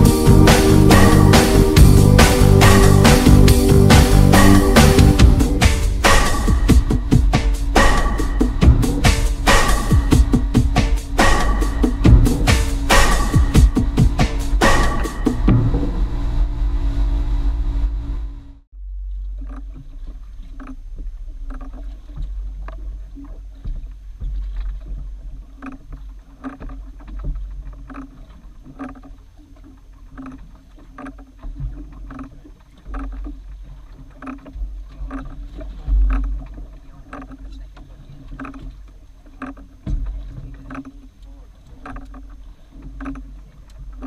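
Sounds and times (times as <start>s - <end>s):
background music: 0.0s - 16.2s.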